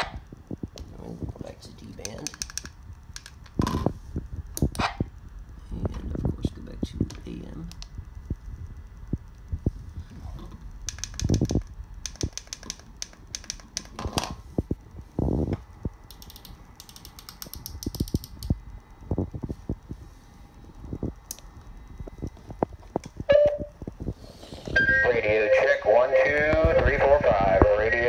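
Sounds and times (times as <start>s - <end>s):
radio handling clicks and rattles: 2.0s - 3.9s, 10.4s - 14.4s
short beep: 24.8s - 25.0s.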